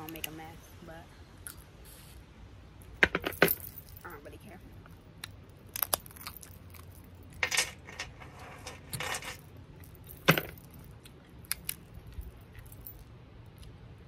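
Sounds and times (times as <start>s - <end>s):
crab shell crunching: 4.8s - 7.4s, 10.7s - 13.9s
metal bangles jangling: 9.0s - 13.1s.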